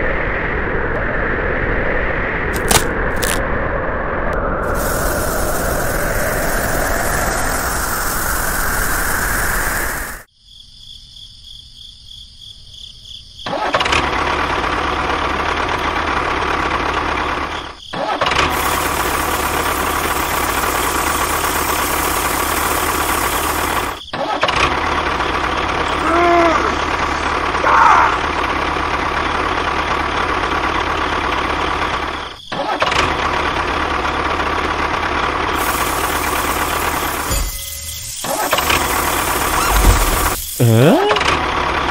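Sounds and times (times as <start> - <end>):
steady hiss: 4.7 - 10.3
tractor engine running: 13.5 - 41.9.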